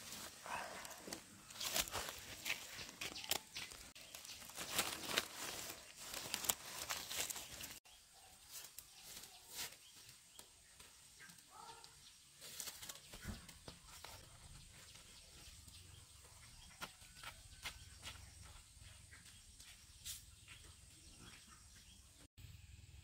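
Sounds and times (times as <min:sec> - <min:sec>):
footsteps through vegetation: 0:00.0 - 0:10.2, 0:12.4 - 0:15.5
quiet outdoor background: 0:00.0 - 0:23.0.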